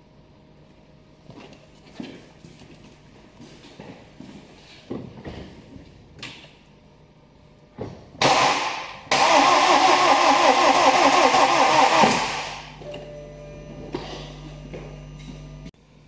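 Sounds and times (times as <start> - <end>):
starter motor cranking engine: 8.3 - 12.7.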